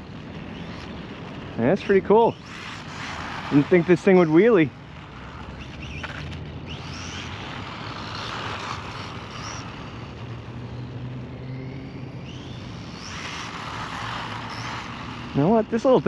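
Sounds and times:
electric motor whining: 0.0s - 16.0s.

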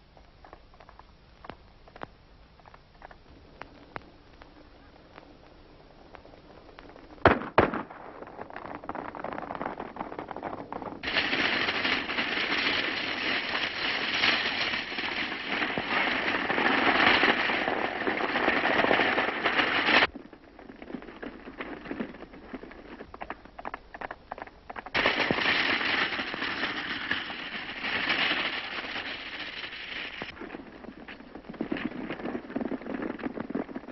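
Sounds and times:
sharp gunshots: 7.2s - 8.0s
rapid crackle of gunfire: 7.2s - 10.1s, 11.0s - 20.1s, 24.9s - 30.4s.

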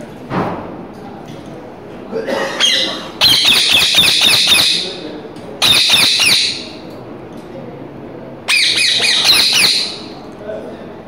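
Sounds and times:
parakeet squawking: 2.6s - 5.0s, 5.6s - 6.8s, 8.5s - 10.2s.

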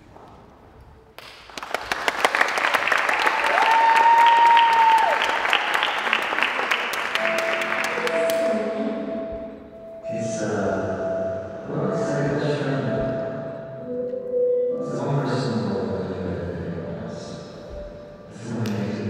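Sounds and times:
audience applauding and cheering: 1.2s - 8.5s
held musical note: 6.9s - 18.6s.

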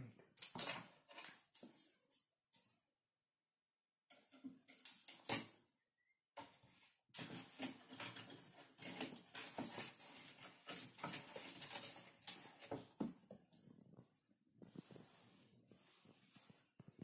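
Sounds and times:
kitten claws scratching on wood: 7.2s - 13.8s.

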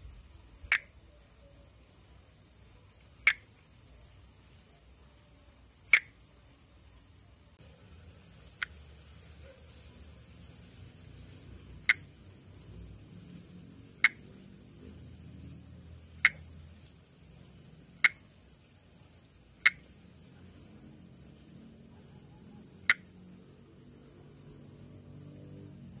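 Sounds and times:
high-pitched insect trill: 0.0s - 26.0s
frog clicking call: 0.6s - 1.6s, 3.0s - 3.6s, 5.8s - 6.3s, 8.3s - 20.7s, 22.0s - 23.2s.

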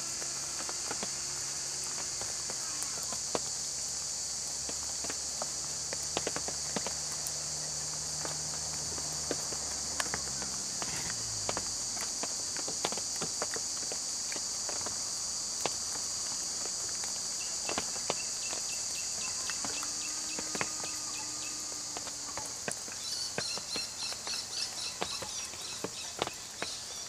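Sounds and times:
insect chorus droning: 0.0s - 27.0s
insects chirping rhythmically: 0.3s - 27.0s.

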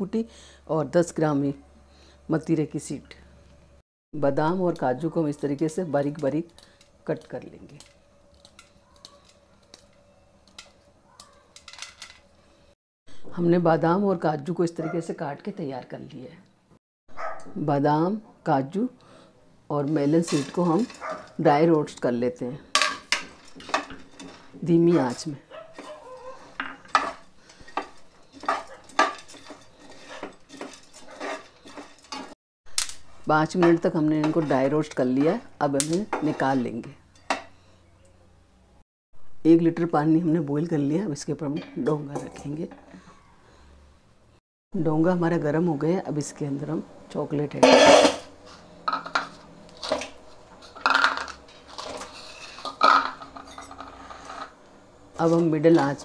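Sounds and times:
spoon scraping frying pan: 19.8s - 21.4s, 22.7s - 32.4s, 33.5s - 37.7s, 47.6s - 54.6s.

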